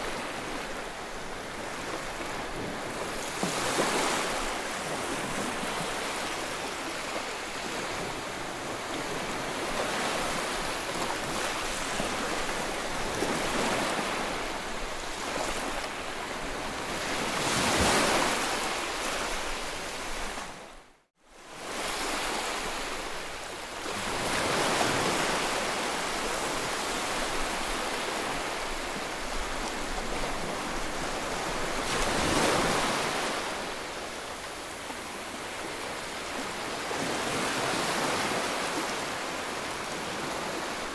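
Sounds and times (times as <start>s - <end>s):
small waves washing on shore: 0.0s - 20.8s, 21.4s - 40.9s.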